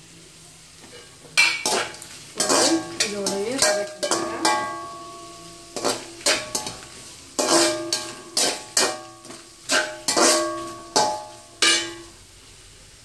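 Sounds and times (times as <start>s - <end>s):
spatula knocking metal pan: 1.4s - 5.1s, 7.4s - 12.1s.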